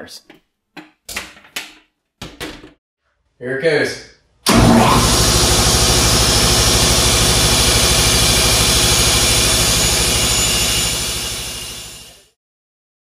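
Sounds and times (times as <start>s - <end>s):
air compressor running: 4.5s - 12.4s.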